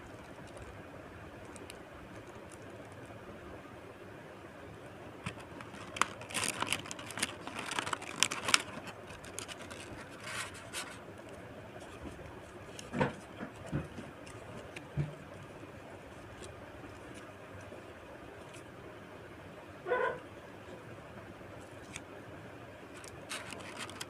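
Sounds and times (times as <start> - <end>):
plastic packaging crinkling: 5.2 - 11.1, 22.9 - 24.0
paper cards rustling: 5.2 - 14.9, 21.6 - 22.0, 22.9 - 24.0.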